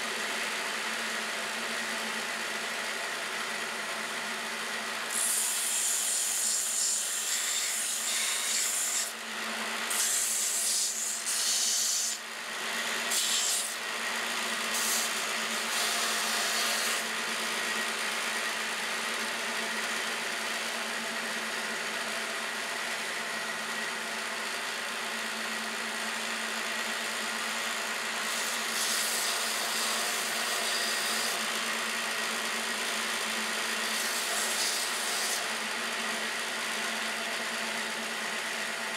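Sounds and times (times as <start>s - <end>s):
sander motor hum: 35.4s - 38.9s.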